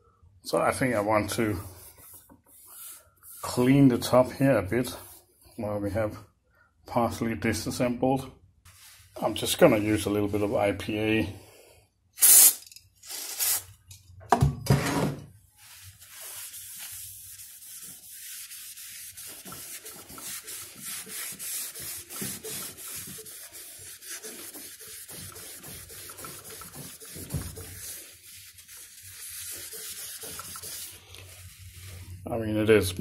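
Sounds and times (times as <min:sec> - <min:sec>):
paper tissue rubbing wood: 0:01.2 - 0:03.8, 0:15.6 - 0:32.2.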